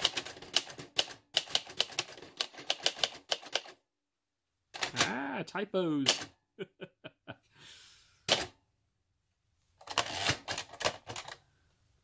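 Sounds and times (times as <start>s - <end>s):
manual typewriter typing: 0.0s - 3.8s, 9.8s - 11.4s.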